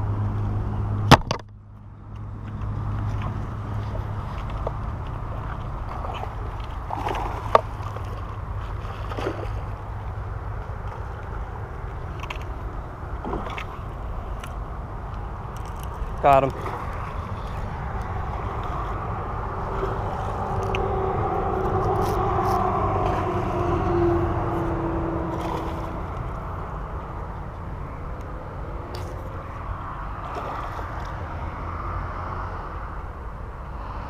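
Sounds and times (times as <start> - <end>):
road traffic rumbling: 0.0 - 34.0
vehicle passing: 14.9 - 34.0.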